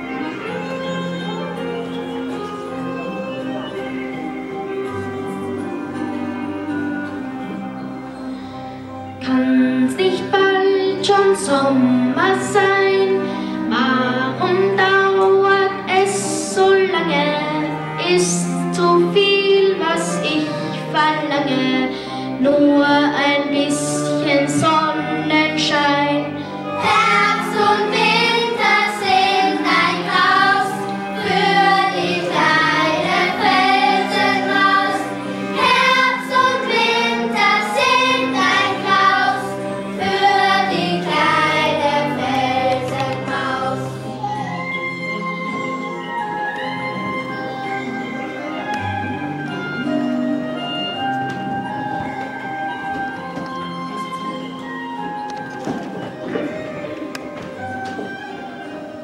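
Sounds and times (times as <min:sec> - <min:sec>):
instrumental accompaniment: 0:00.0 - 0:59.0
children singing: 0:24.4 - 0:44.3.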